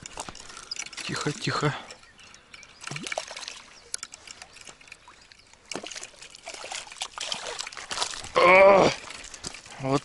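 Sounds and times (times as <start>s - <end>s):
fish splashing in water: 2.8s - 8.4s.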